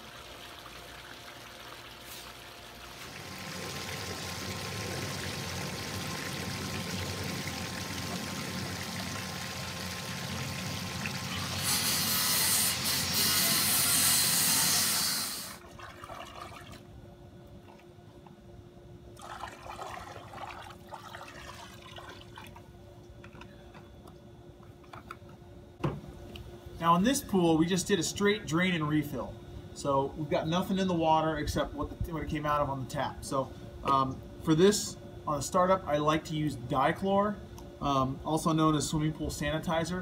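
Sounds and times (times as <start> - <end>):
faint steady hum: 0.0 - 12.8, 13.4 - 40.0
water rushing and pouring: 2.8 - 11.4, 19.2 - 22.6.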